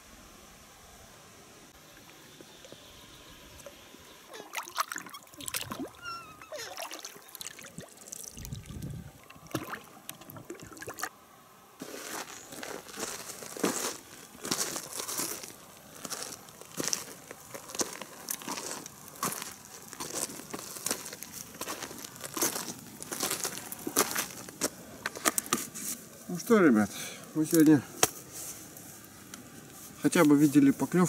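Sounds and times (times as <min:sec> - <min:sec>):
water sloshing around boat: 0:04.3 - 0:11.1.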